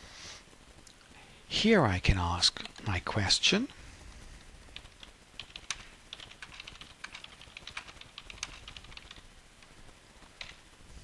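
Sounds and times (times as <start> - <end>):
computer keyboard typing: 4.8 - 9.2, 10.4 - 10.6.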